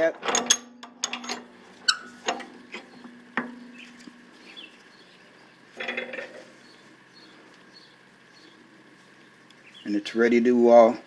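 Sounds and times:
metal clanks rattling: 0.0 - 4.3, 5.8 - 6.5
vise metal click: 0.2 - 3.7
faint bird chirps: 2.9 - 5.8.

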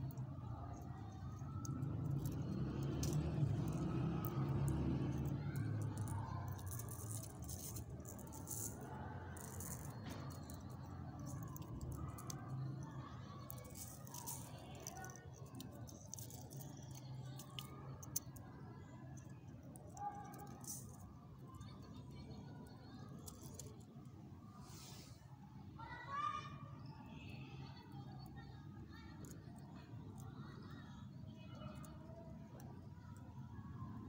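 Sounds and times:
seed capsules rattling: 0.0 - 18.6, 19.2 - 21.6, 23.1 - 23.7
seeds pattering on paper: 0.1 - 21.0.

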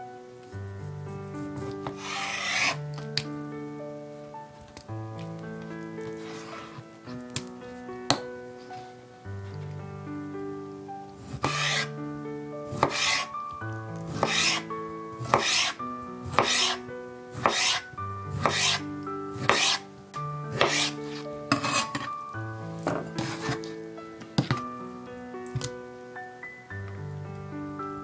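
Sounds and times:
background music: 0.0 - 28.0
knife slicing onto cutting board: 11.4 - 11.9, 12.8 - 13.3, 14.1 - 14.6, 18.4 - 18.8, 20.6 - 22.1.

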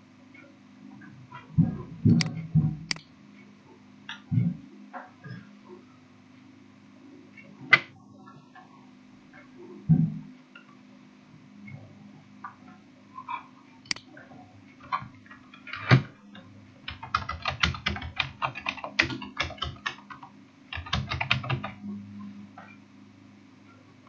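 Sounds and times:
low steady hum: 0.0 - 24.0
typing on computer keyboard: 16.9 - 21.8.

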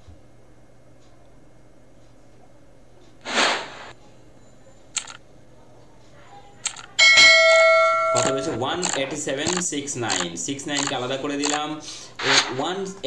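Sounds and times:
faint steady hum: 0.0 - 13.0
sharp click: 5.0 - 5.2, 6.6 - 6.9.

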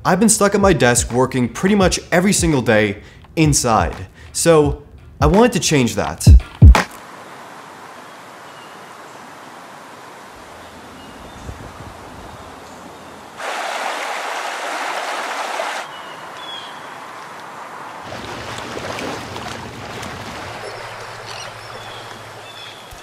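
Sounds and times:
small waves lapping on shore: 7.0 - 23.0
loud rushing hiss: 13.4 - 15.9
faint bird chirps: 15.8 - 17.0, 20.6 - 23.0.

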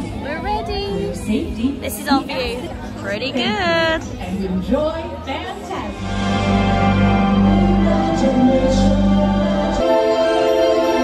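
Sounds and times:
deep bass line: 5.7 - 11.0.

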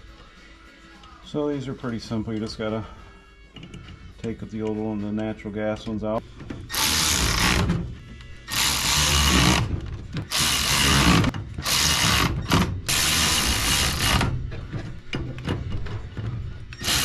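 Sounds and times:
power drill running in bursts: 16.8 - 17.0.

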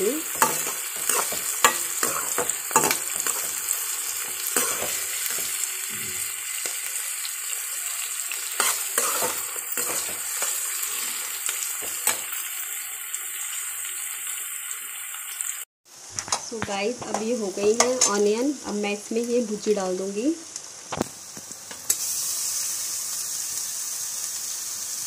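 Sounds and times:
metal spatula scraping a pan: 0.0 - 6.8, 8.0 - 12.3
onions sizzling in hot oil: 0.0 - 25.0.

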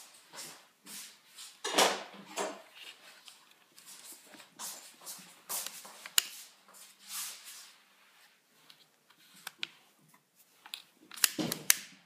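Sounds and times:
sharp plastic clicks: 10.7 - 12.0.

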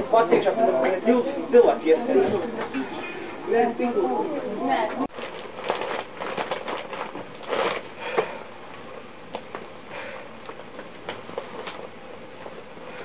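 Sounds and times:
crisp packet crinkling: 5.1 - 8.2.

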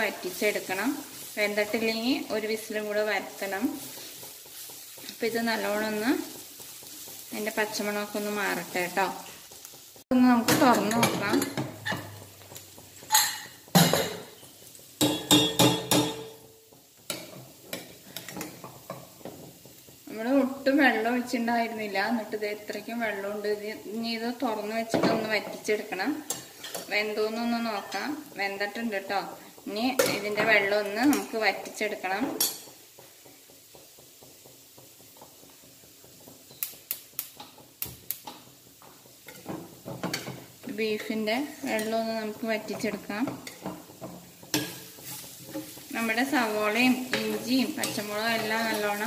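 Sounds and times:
metal pot lid clanking: 15.0 - 16.4.

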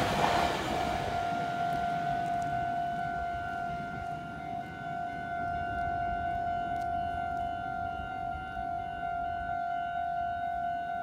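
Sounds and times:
low rumble: 0.0 - 4.1.

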